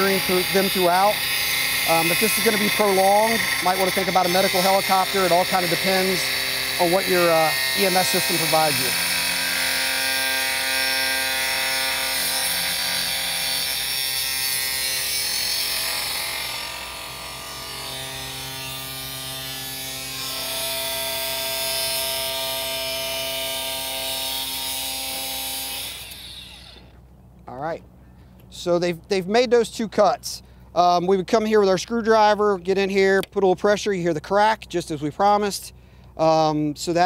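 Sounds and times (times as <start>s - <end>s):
angle grinder cutting metal: 0.0s - 26.9s.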